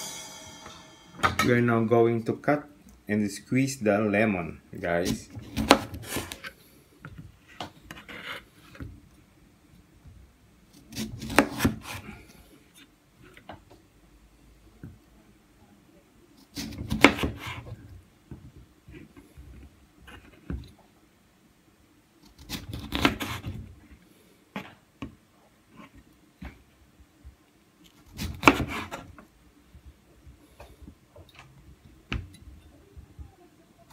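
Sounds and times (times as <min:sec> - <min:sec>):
knife slicing lemons on cutting board: 0:05.0 - 0:06.4, 0:10.8 - 0:12.0, 0:16.5 - 0:17.6, 0:22.4 - 0:23.6, 0:28.2 - 0:29.1.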